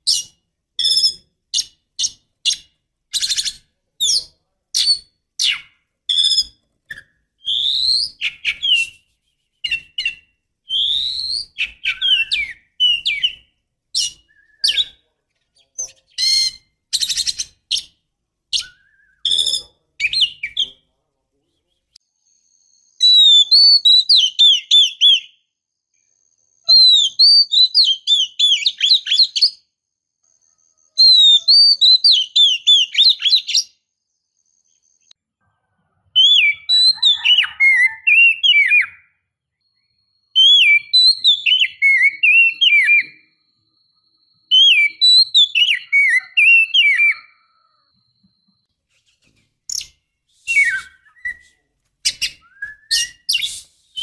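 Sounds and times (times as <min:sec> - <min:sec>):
bird singing whistled phrases: 0:00.1 - 0:15.0, 0:18.5 - 0:20.8, 0:22.8 - 0:25.4, 0:26.6 - 0:29.6, 0:31.0 - 0:33.8, 0:36.2 - 0:43.4, 0:44.4 - 0:47.9, 0:49.7 - 0:54.0.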